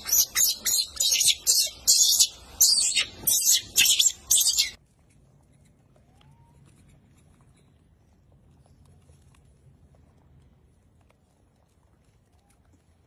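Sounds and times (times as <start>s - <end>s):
baby monkey screaming: 0.0s - 4.8s.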